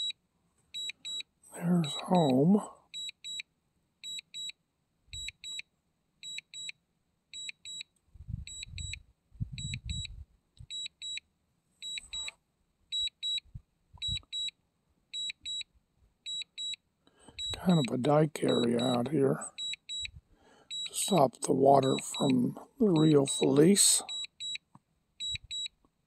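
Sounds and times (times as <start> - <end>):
high-pitched beeps: 0.8 - 3.4, 17.4 - 20.1, 20.7 - 24.6, 25.2 - 25.7.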